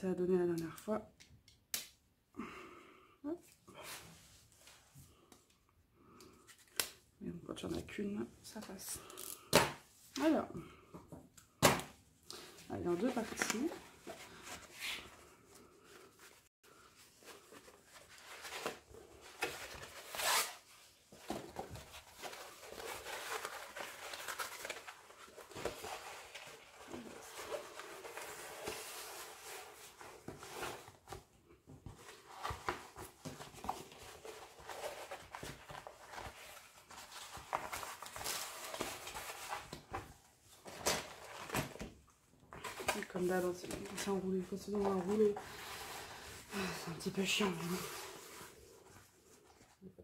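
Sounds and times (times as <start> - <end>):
canvas and plastic film rustling: 12.4 - 31.1, 42.5 - 49.2.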